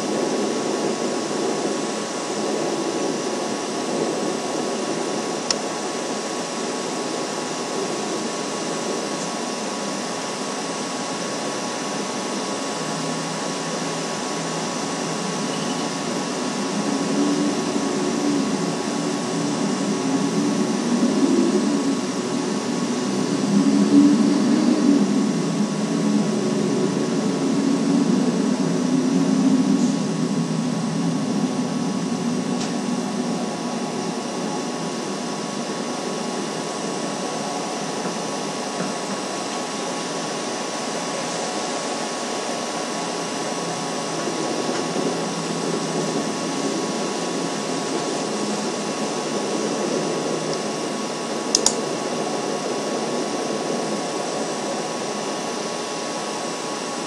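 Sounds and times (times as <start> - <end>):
electrical hum: 0.0 - 57.0
sharp click: 51.6 - 51.8.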